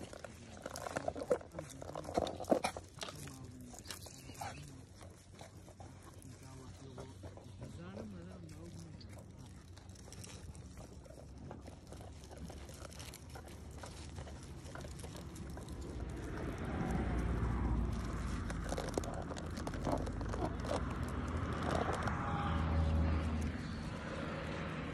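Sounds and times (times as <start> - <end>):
hooves on stony ground: 0.0 - 24.9
sheep biting grass: 0.0 - 24.9
low rumble: 11.3 - 24.9.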